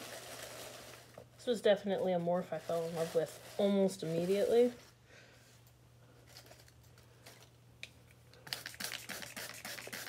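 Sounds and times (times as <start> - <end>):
spray bottle spritzing on leaves: 8.5 - 10.0.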